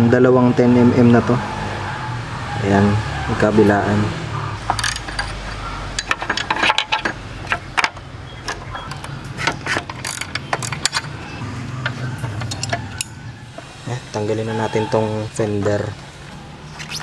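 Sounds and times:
ratchet wrench clicking: 0:09.9 - 0:11.2.

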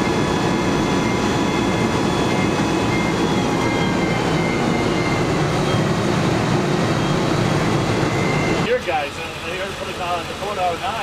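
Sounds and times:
fire engine diesel engine running: 0:00.0 - 0:11.0.

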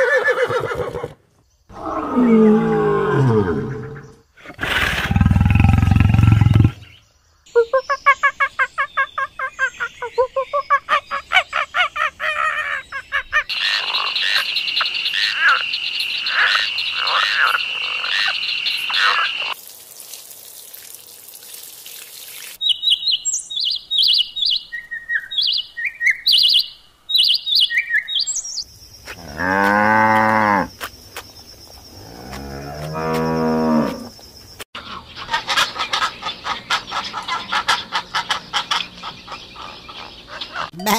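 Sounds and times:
lion roaring: 0:01.7 - 0:06.8
frogs croaking: 0:01.7 - 0:19.6, 0:22.6 - 0:40.9
cow mooing: 0:29.2 - 0:30.7, 0:32.1 - 0:34.1.

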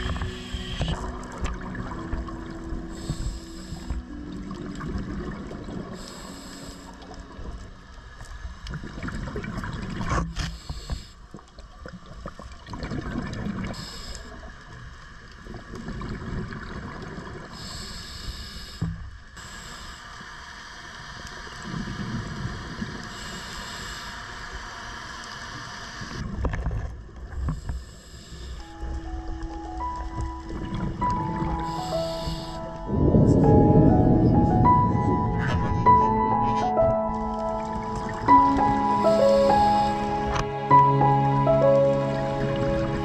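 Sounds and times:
muffled underwater noise: 0:00.0 - 0:11.1, 0:27.5 - 0:43.0
short hissing bursts: 0:31.7 - 0:32.7.

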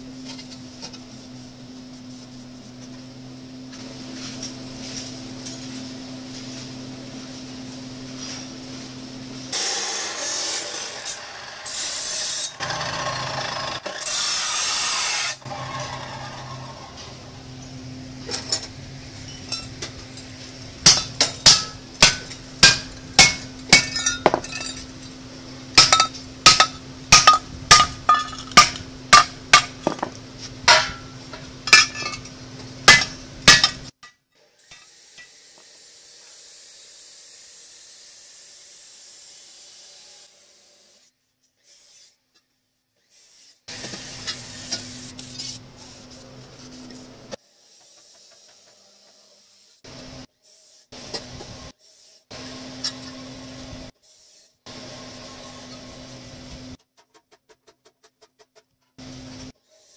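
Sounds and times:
steady electrical hum: 0:15.3 - 0:34.0
hammer striking steel pipe: 0:20.8 - 0:24.8, 0:25.8 - 0:34.2.

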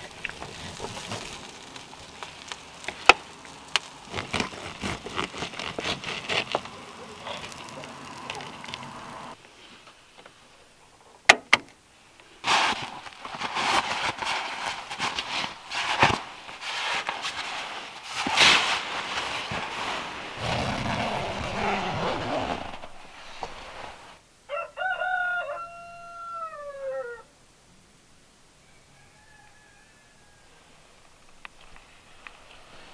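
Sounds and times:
sleeping bag rustling: 0:00.0 - 0:08.6, 0:12.4 - 0:24.2
rooster crowing: 0:24.5 - 0:27.3, 0:28.6 - 0:30.8.

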